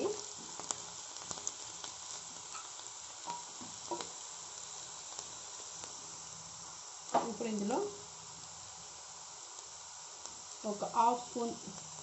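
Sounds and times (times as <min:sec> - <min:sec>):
vegetables sizzling in oil: 0:00.0 - 0:12.0
spatula scraping and knocking pan: 0:02.5 - 0:04.1.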